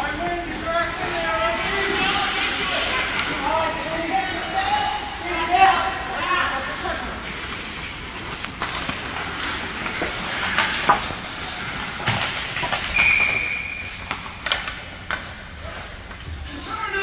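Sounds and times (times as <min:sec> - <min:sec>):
skates scraping on ice: 0:00.1 - 0:06.0, 0:06.6 - 0:17.0
sticks and puck clacking: 0:07.2 - 0:17.0
referee's whistle: 0:12.9 - 0:13.9.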